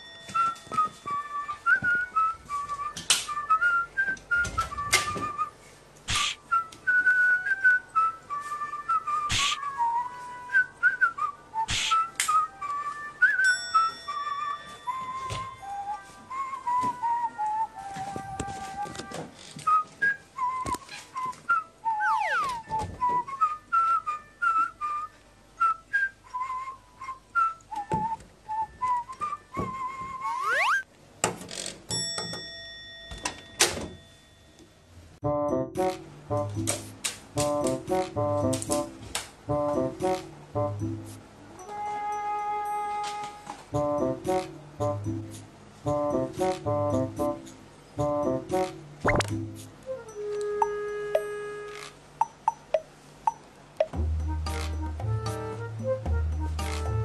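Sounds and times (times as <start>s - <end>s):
whistled tune: 0.2s - 5.6s, 6.2s - 19.0s, 19.6s - 30.9s, 40.8s - 45.2s, 49.1s - 53.4s, 55.0s - 57.0s.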